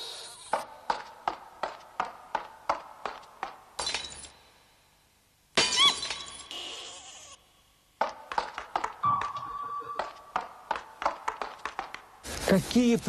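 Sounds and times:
china cup smashing: 3.8 - 4.3.

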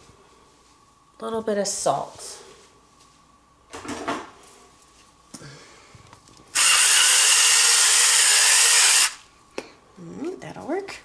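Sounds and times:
salt grinder grinding: 6.5 - 9.2.

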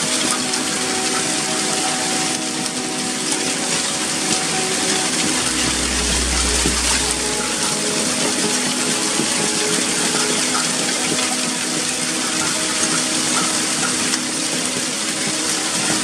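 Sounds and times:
deep low rumble: 5.3 - 8.1.

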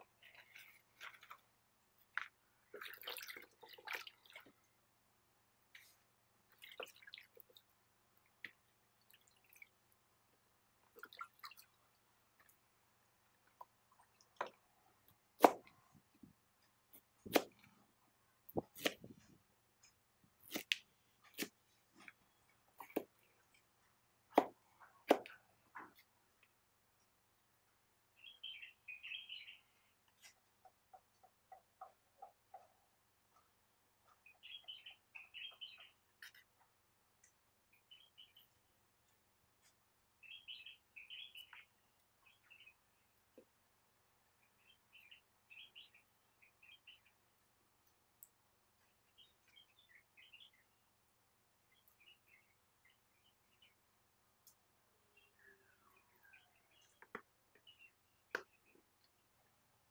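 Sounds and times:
hands washing vegetables in water: 0.1 - 4.9, 5.7 - 15.7
water splashes and drips: 2.0 - 4.8, 5.7 - 14.7
knife chopping on wood: 17.3 - 17.6, 24.4 - 25.3.

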